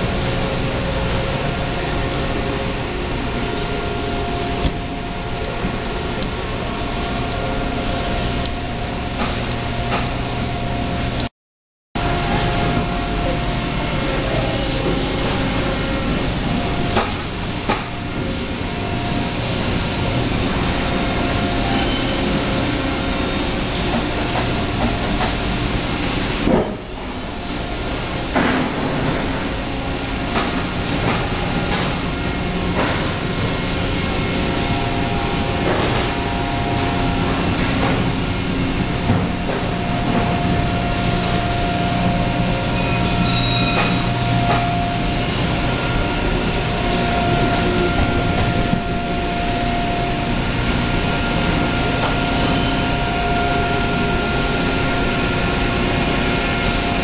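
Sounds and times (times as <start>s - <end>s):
machine hum and hiss: 0.0s - 11.3s, 12.0s - 57.0s
steady high tone: 31.4s - 57.0s.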